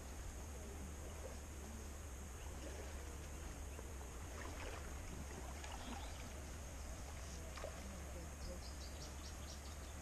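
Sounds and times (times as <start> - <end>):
faint river water: 0.0 - 10.0
faint short splashes: 2.3 - 8.7.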